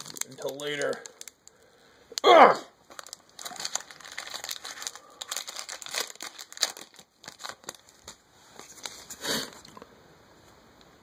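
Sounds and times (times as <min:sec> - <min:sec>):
foil wrapper crinkling and tearing: 0:00.0 - 0:01.6, 0:02.8 - 0:09.7.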